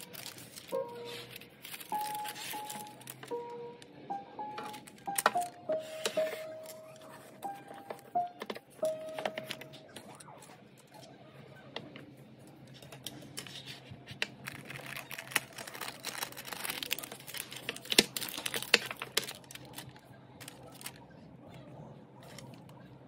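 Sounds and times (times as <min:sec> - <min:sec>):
paper rustling and crinkling: 0:00.0 - 0:03.4, 0:12.7 - 0:21.0.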